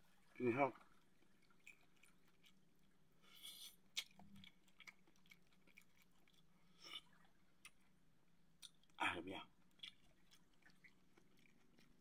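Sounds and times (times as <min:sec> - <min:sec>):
person chewing seafood: 0:00.8 - 0:12.0
mouth clicks and smacks: 0:03.3 - 0:07.9, 0:08.6 - 0:09.0.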